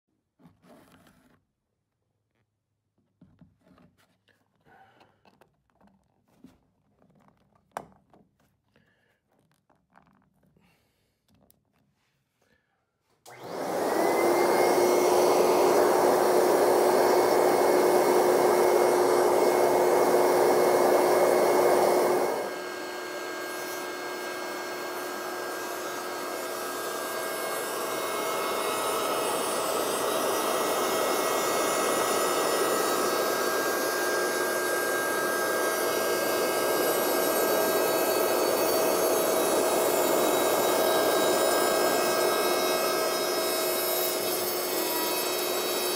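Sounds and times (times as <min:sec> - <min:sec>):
router spindle whine: 0:13.3 - 0:45.9.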